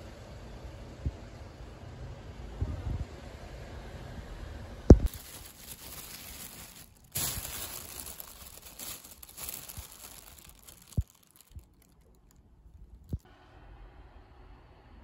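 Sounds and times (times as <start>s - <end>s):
plastic bag crinkling: 5.0s - 13.3s.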